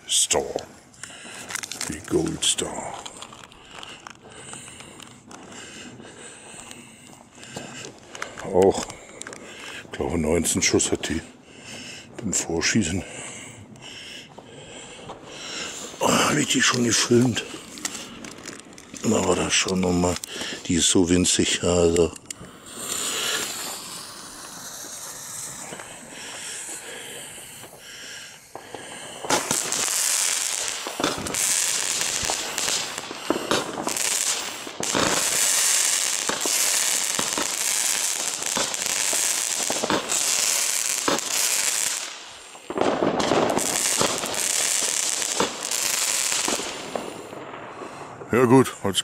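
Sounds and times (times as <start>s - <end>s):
firework fuse hissing: 0.0s - 11.2s, 15.2s - 48.3s
firework shots: 13.7s - 48.4s
high hiss of firework stars: 22.4s - 48.2s.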